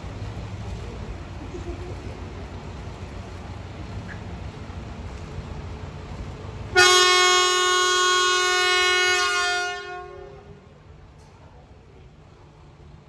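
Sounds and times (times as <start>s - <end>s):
train horn blast: 6.7s - 10.6s.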